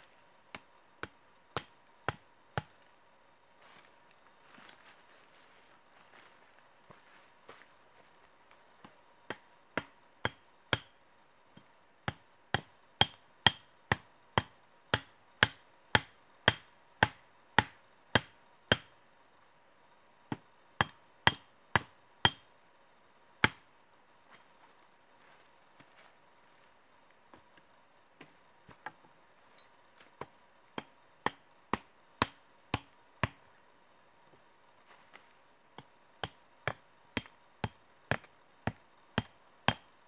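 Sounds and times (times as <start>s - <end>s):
machete striking wood: 30.2s - 33.4s.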